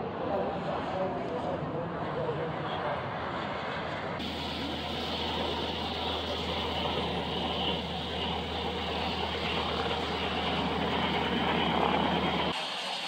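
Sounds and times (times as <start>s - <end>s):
radial engine low drone: 4.2s - 12.6s.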